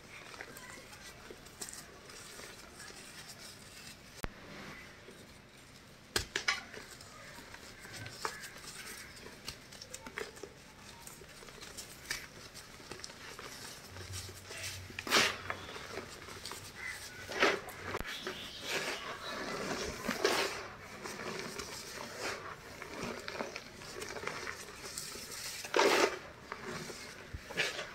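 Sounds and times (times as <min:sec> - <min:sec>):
hands crunching powder: 0:06.7 - 0:27.9.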